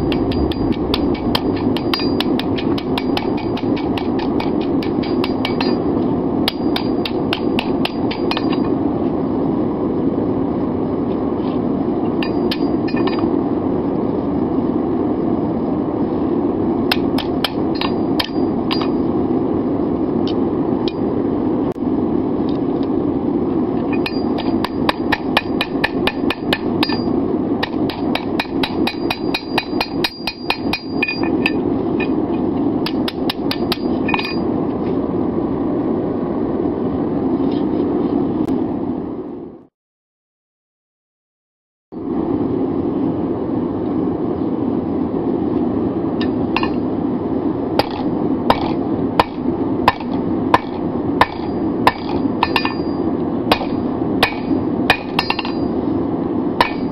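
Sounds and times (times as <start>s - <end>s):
hammer striking steel on anvil: 0.0s - 5.9s, 6.5s - 8.7s, 12.2s - 13.3s, 16.9s - 19.1s, 23.9s - 32.2s, 32.8s - 34.5s, 46.6s - 46.8s, 47.8s - 55.8s, 56.6s - 56.9s
steady rushing noise: 0.0s - 39.4s, 42.0s - 56.9s.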